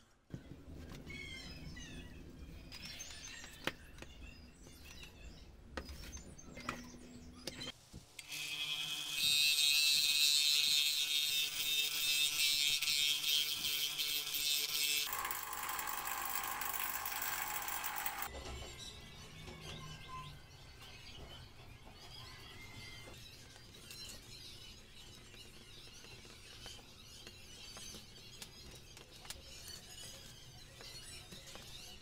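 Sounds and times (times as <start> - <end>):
wooden wheel sanding noise: 10.0 - 18.3
belt sander humming: 15.0 - 18.3.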